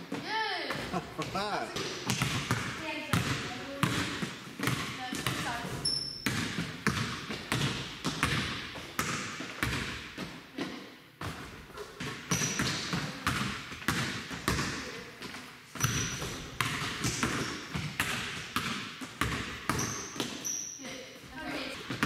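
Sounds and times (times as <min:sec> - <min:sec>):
basketballs bouncing on hardwood floor: 0:00.0 - 0:22.0
high squeaks: 0:05.8 - 0:06.3, 0:19.7 - 0:21.0.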